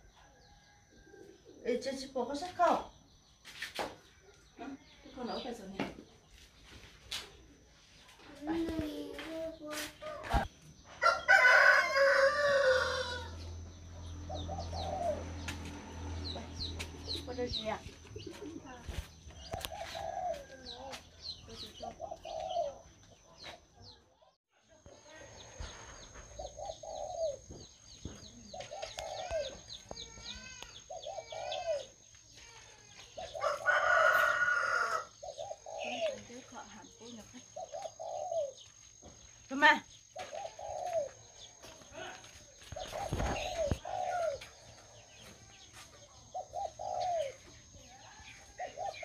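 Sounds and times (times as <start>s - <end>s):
small birds chirping: 0.0s - 49.0s
rooster crowing: 10.9s - 13.7s, 33.2s - 35.2s
low rising and falling bird call: 11.0s - 17.2s, 42.7s - 45.6s.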